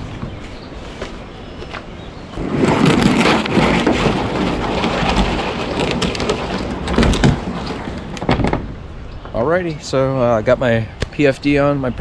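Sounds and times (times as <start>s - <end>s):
kayak scraping on concrete: 2.3s - 8.7s
knocks and clatter: 2.4s - 8.8s.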